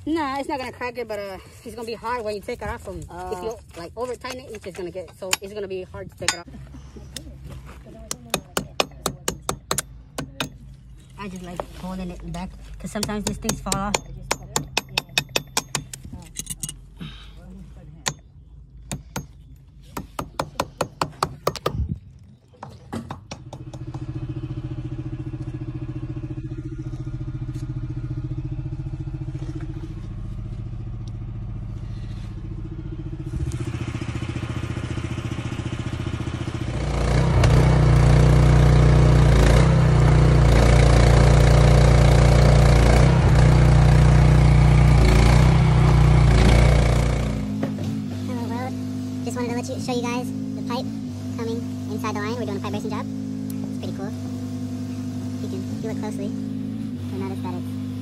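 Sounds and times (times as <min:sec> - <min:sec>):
engine running steadily: 0:00.0 - 0:58.0
hammer rapping steel: 0:08.1 - 0:10.6, 0:12.9 - 0:16.7, 0:18.0 - 0:18.3, 0:20.0 - 0:21.8.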